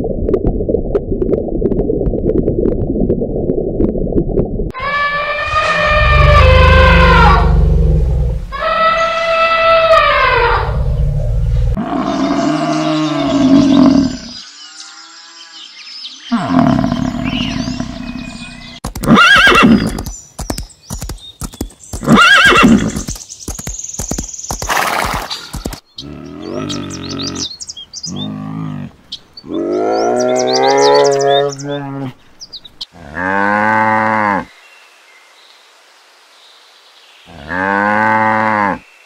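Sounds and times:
horse whinnying: 19.0s - 20.0s, 22.0s - 23.1s.

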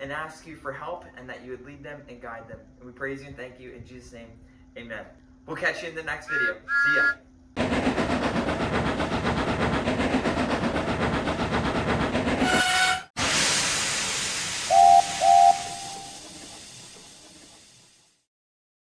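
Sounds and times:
steam whistle: 6.3s - 7.2s, 12.4s - 13.1s, 14.6s - 16.5s
steam locomotive chuffing: 6.3s - 18.3s
steam hissing: 13.2s - 18.3s.

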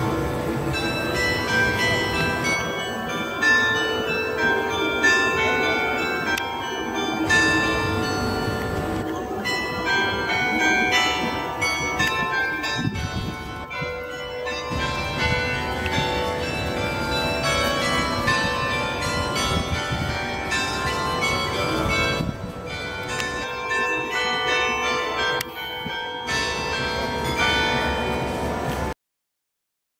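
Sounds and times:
tower bells ringing: 0.0s - 29.0s.

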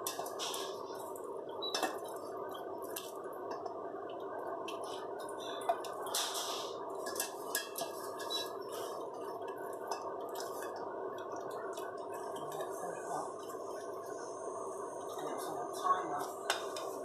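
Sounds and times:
water dripping and splashing: 0.0s - 14.2s.

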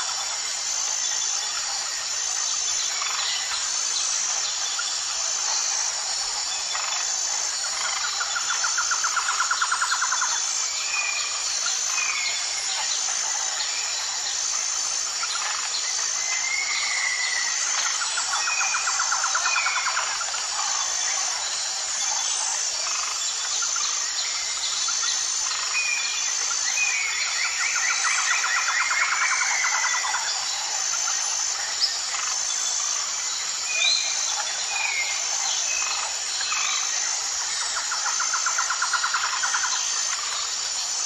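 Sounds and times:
high insect chirping: 0.0s - 41.0s.

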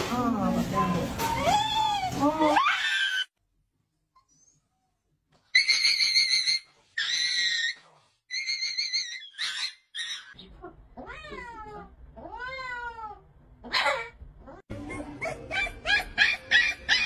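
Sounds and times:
dog screaming: 1.4s - 3.3s.

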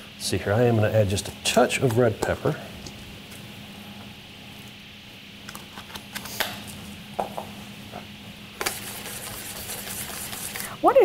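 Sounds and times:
scraping hiss of food stirred: 8.6s - 10.9s.

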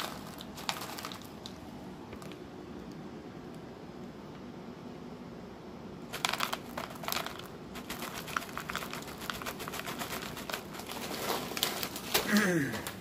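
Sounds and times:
kibble clattering into plastic bowl: 0.0s - 1.3s, 6.1s - 12.2s
bag crinkling: 0.0s - 1.6s, 6.1s - 13.0s.

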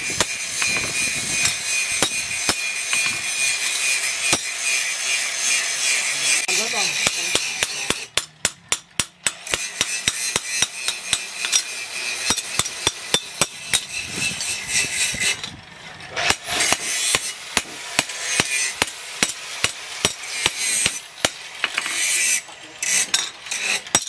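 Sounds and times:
hammer striking metal on anvil: 0.1s - 4.5s, 6.9s - 14.6s, 16.2s - 21.9s.

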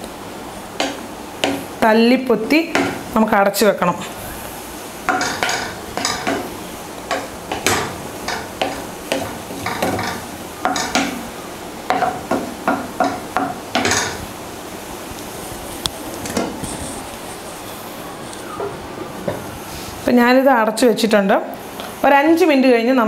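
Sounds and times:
food sizzling: 0.0s - 18.4s.

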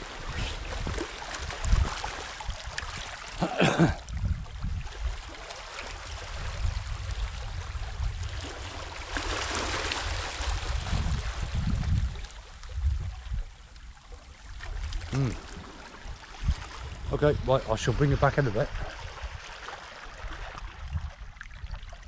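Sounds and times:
sea washing on shore: 0.0s - 20.9s.

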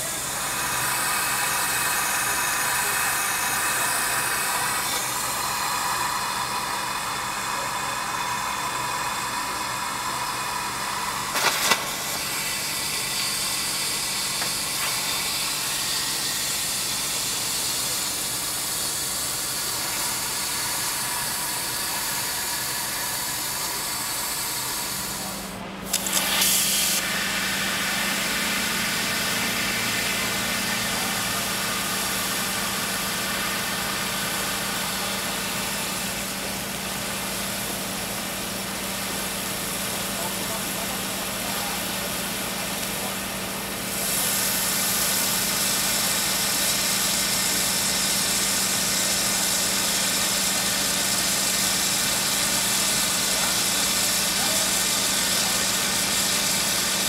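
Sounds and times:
rushing hiss: 0.0s - 36.4s
engine running: 0.0s - 57.0s.

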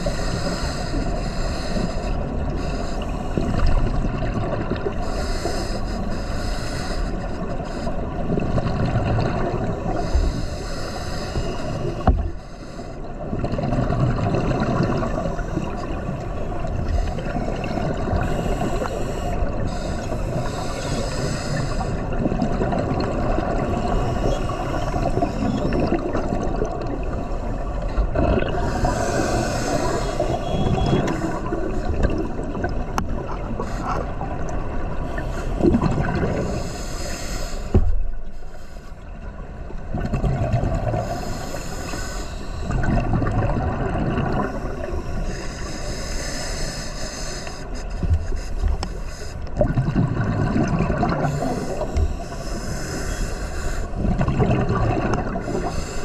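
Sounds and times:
diver exhaling bubbles: 28.0s - 34.4s, 42.7s - 44.9s, 49.6s - 52.1s, 54.0s - 55.8s
regulator hiss: 36.4s - 37.7s.

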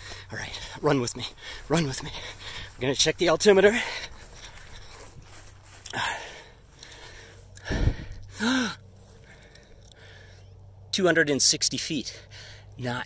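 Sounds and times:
man breathing hard: 0.0s - 2.8s, 3.6s - 10.5s, 12.1s - 12.8s
man sighing: 5.8s - 10.4s.

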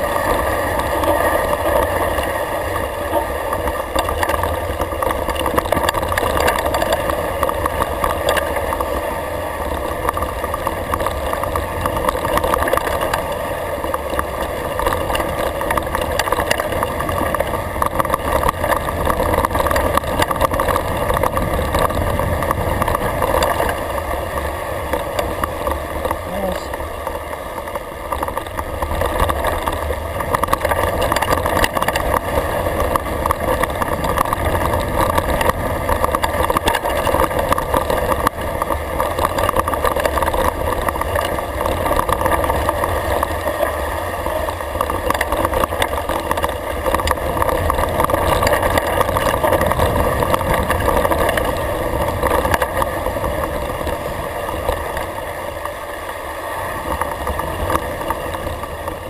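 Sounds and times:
bike rattling over bumps: 0.0s - 59.0s.

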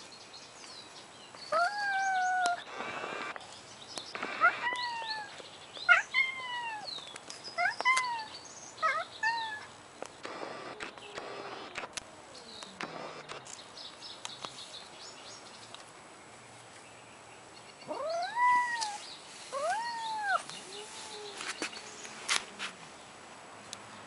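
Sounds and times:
cat yowling: 1.6s - 2.6s, 4.2s - 5.3s, 5.9s - 6.9s, 7.6s - 9.7s, 17.9s - 19.0s, 19.6s - 21.3s
burst of noise: 2.6s - 3.4s, 4.1s - 4.8s, 10.2s - 13.5s.

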